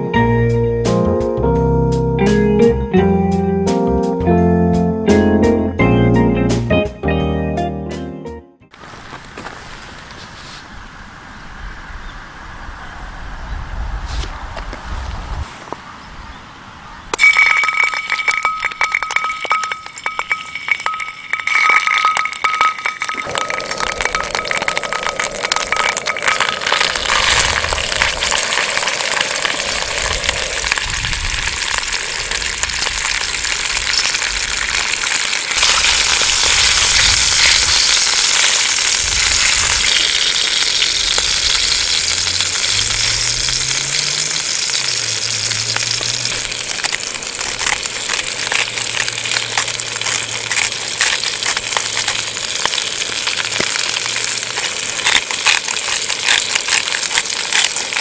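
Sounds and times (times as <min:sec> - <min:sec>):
beef searing: 0:17.1 - 0:58.0
oil sizzling in a frying pan: 0:17.1 - 0:58.0.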